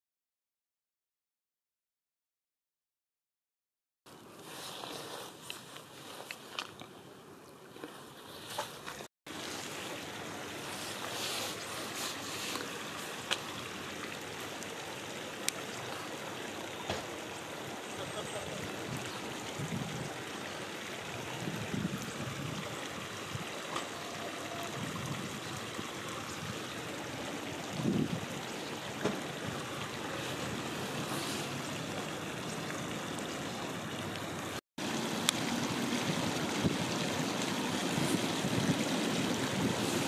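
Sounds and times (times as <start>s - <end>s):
river water rushing: 8.6s - 40.0s.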